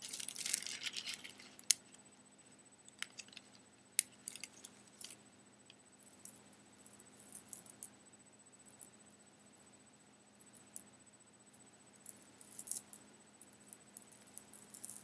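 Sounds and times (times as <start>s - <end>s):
tissue paper crinkling: 0.0s - 1.6s
beads clicking and jingling: 0.0s - 1.8s, 3.0s - 5.2s, 12.1s - 13.0s, 14.0s - 15.0s.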